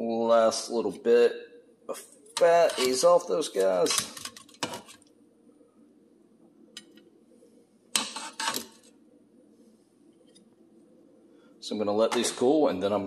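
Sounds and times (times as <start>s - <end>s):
faint steady hum: 0.0s - 13.0s
tongs scraping metal basket: 2.4s - 4.9s.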